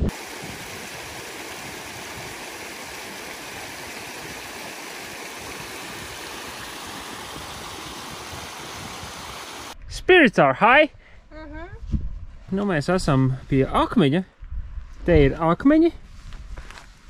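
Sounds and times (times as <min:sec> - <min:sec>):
stream rushing over rocks: 0:00.1 - 0:09.8.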